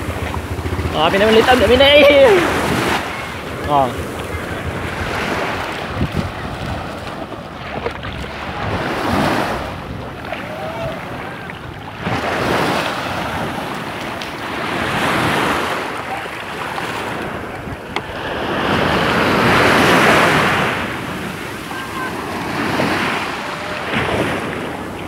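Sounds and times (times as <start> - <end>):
small waves washing in: 0.0 - 25.0
wind on the microphone: 2.4 - 13.9.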